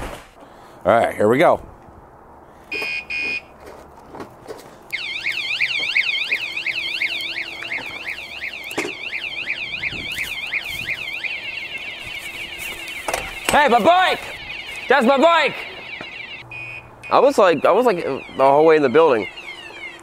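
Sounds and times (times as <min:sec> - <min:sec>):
alarm beeps: 0:02.7 - 0:03.5, 0:04.9 - 0:20.0
warbling alarm siren: 0:04.9 - 0:20.0.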